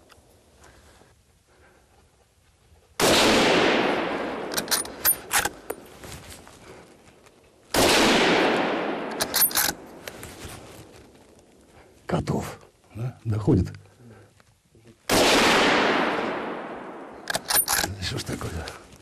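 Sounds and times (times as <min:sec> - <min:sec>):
gunshots echoing through forest: 0:03.0 - 0:05.8, 0:07.7 - 0:10.0, 0:15.1 - 0:17.4
sharp clicks: 0:04.5 - 0:05.8, 0:09.1 - 0:09.8, 0:17.2 - 0:18.0.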